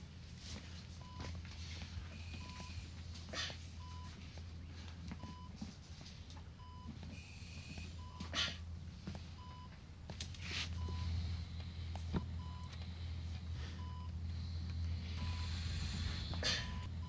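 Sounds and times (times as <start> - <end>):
steady low hum: 0.0 - 17.0
patient monitor beeping: 1.0 - 5.6, 6.4 - 8.4, 9.2 - 9.8, 10.7 - 17.0
soft breathy hisses: 15.0 - 16.8.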